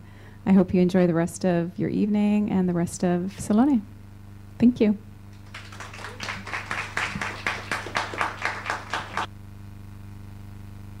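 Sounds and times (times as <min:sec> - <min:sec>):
people clapping: 0:05.3 - 0:09.3.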